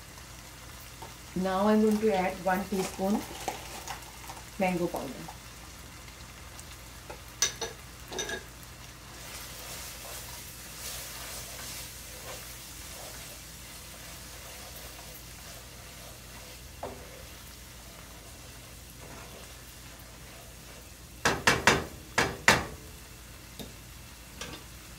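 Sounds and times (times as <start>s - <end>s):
masala sizzling in a pan: 0.0s - 24.9s
utensil knocking against pan: 21.2s - 22.8s.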